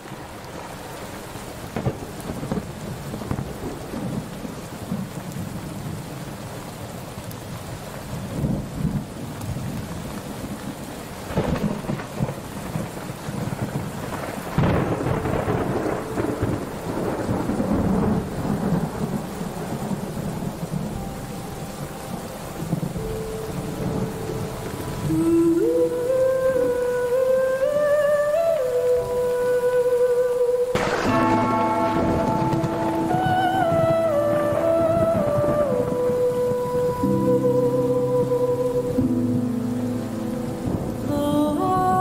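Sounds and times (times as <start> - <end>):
steady rain: 0.0 - 42.0
rolling thunder: 1.7 - 6.1, 8.2 - 21.1, 30.8 - 37.0.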